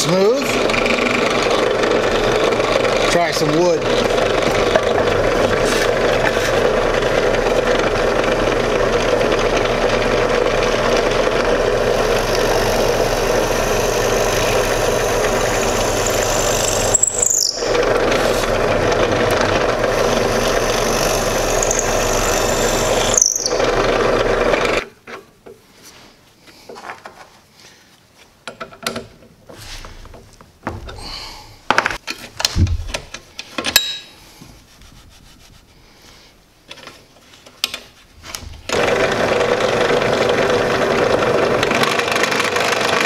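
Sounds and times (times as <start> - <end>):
drill press motor hum: 0.4 - 24.8, 38.7 - 43.0
high-pitched squeal: 10.2 - 24.8.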